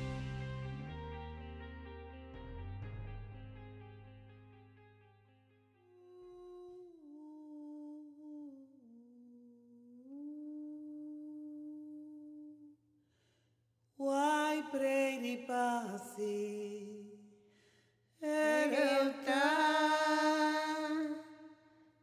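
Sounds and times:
wordless chant-like singing: 0:18.2 - 0:21.6.

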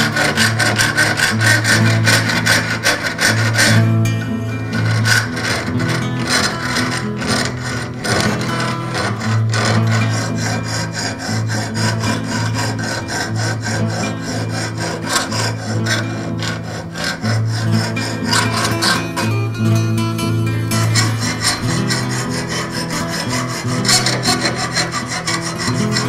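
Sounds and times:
hand file rasping on metal: 0:00.0 - 0:26.0
background music with bass: 0:18.9 - 0:22.4.

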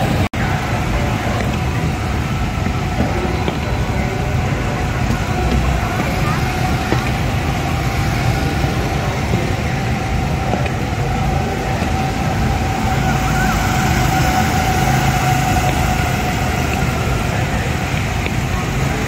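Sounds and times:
go-kart engines droning: 0:00.0 - 0:19.0.

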